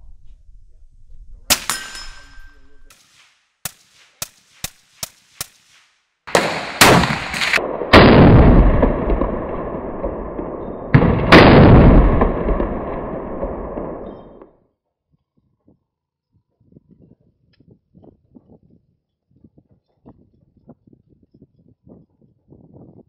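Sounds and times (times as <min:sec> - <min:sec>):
rifle shots cracking: 0:01.5 - 0:02.3, 0:02.9 - 0:14.0
heavy gunshots with rumble: 0:06.3 - 0:14.4.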